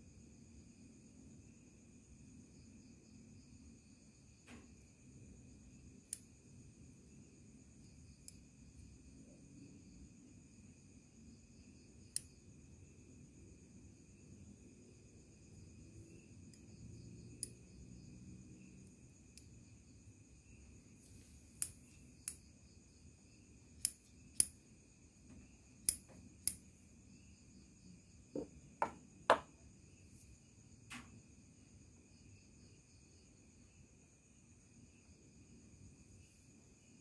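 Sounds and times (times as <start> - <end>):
crickets chirring: 0.0 - 37.0
scissors knocking on wooden floor: 28.4 - 29.5.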